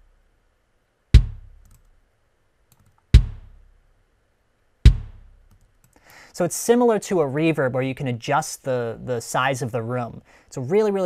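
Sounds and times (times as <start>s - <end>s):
kick drum hits: 1.2s - 1.6s, 3.1s - 3.6s, 4.9s - 5.3s.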